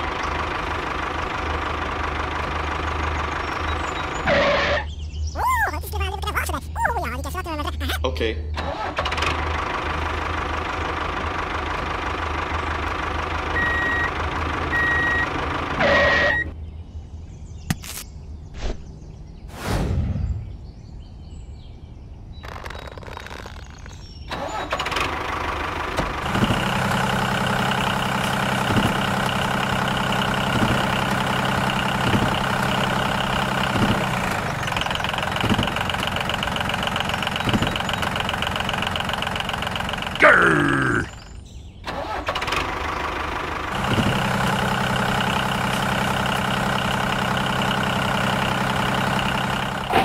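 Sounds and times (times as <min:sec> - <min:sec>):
tractor engine running: 0:00.0 - 0:07.8, 0:08.6 - 0:16.6, 0:22.4 - 0:50.0
whoosh: 0:19.5 - 0:20.7
knocks: 0:35.3 - 0:36.2.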